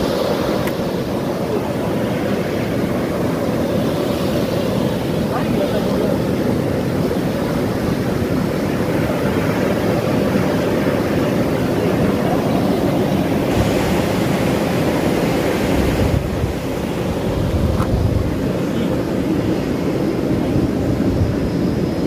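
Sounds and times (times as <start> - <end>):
steam venting loudly: 10.0 - 21.9.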